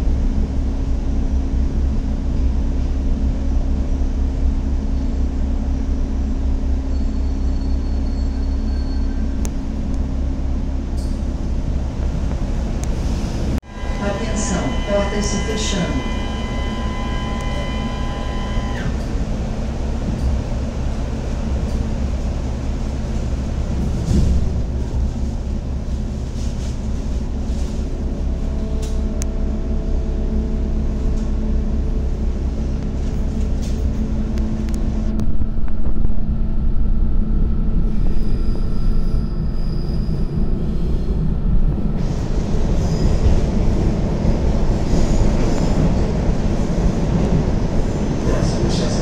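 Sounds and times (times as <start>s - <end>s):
train wheels rumbling on rail: 0.0s - 49.0s
humming tones: 13.6s - 20.4s.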